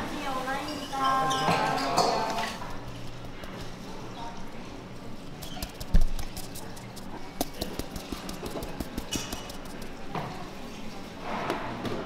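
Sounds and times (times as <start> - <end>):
dishes and utensils clattering: 0.7 - 2.8.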